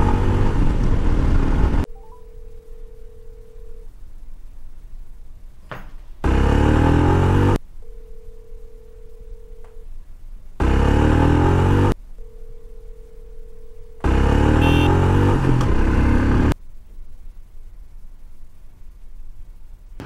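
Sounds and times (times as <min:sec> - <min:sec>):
motorcycle engine running: 0:00.0 - 0:01.8, 0:06.2 - 0:07.6, 0:10.6 - 0:12.0, 0:14.0 - 0:16.6
phone ringback tone: 0:01.9 - 0:03.9, 0:07.8 - 0:09.8, 0:12.2 - 0:14.9.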